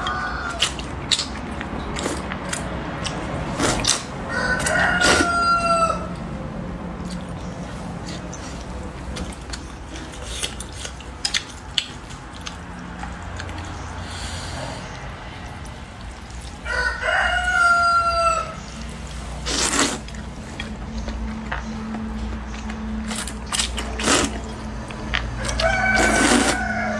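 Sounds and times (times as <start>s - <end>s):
rooster crowing: 0.0s - 0.7s, 4.3s - 6.2s, 16.6s - 18.7s, 25.4s - 26.9s
loud slurp of noodles: 19.4s - 20.2s, 23.9s - 24.4s, 25.9s - 26.6s.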